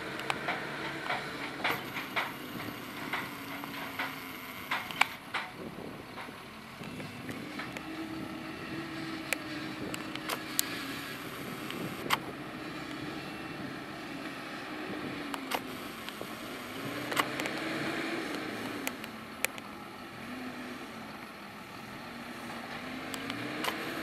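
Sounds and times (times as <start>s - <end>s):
sharp clicks and knocks: 0.0s - 7.9s, 15.3s - 19.7s
diesel engine running under load: 0.0s - 24.0s.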